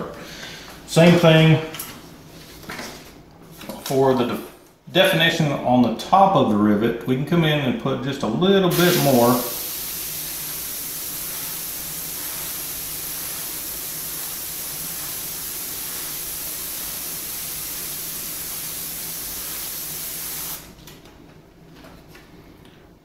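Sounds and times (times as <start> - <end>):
airbrush spraying paint: 8.7 - 20.8.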